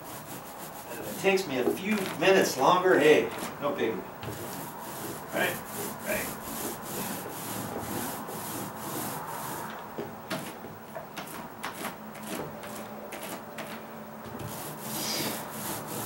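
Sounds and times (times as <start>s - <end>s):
paint roller rubbing on wood: 0.0s - 16.0s
roller clicking in paint tray: 4.2s - 13.8s, 14.4s - 16.0s.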